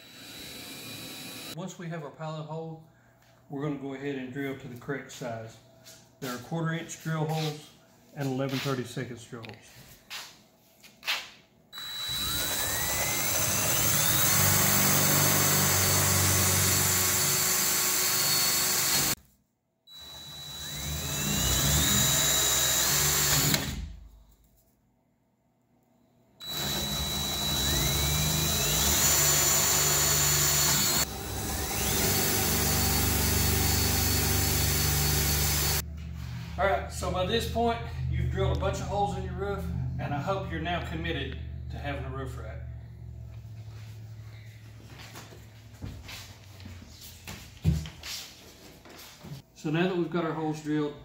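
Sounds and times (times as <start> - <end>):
power drill whirring: 0.0 - 1.6, 11.8 - 19.2, 19.9 - 24.0, 26.4 - 35.8.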